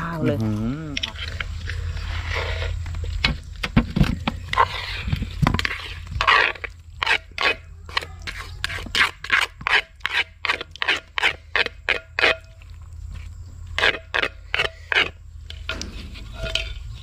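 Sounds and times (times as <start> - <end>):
spoon scraping salad in bowl: 4.3 - 12.7
clatter and rustling: 12.6 - 17.0.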